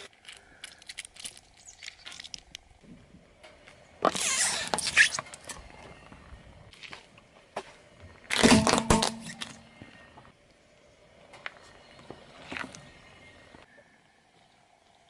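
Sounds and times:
plastic toy crunching: 0:00.0 - 0:02.7
plastic creak: 0:04.0 - 0:05.6.

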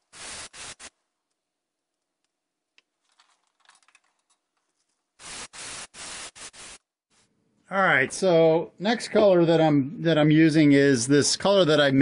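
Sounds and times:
airbrush spraying: 0:00.0 - 0:00.9, 0:05.2 - 0:06.9.

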